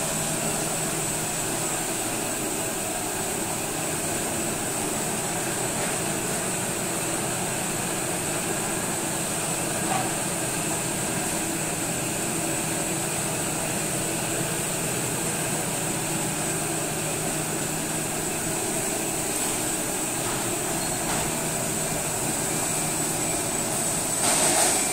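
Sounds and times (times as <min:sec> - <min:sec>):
steam machinery hiss: 0:12.8 - 0:24.9.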